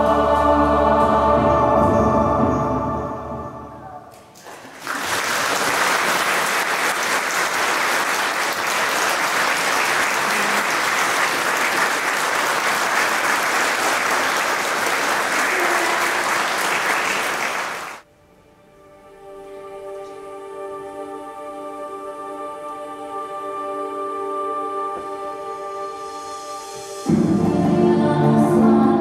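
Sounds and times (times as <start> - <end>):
choir singing: 0.0 - 4.0, 19.2 - 29.0
audience applauding: 4.3 - 18.0.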